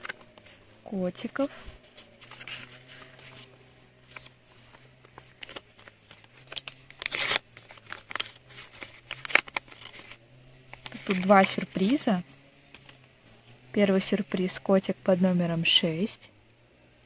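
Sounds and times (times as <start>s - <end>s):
paper rustling and crinkling: 0.0s - 12.1s.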